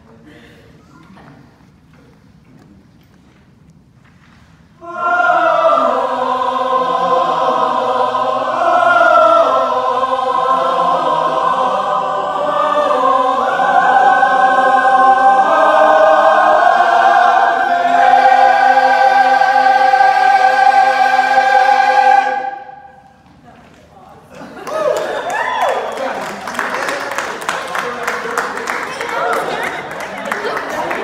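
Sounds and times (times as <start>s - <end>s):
mixed choir singing in harmony: 4.8s - 23.3s, 26.5s - 31.0s.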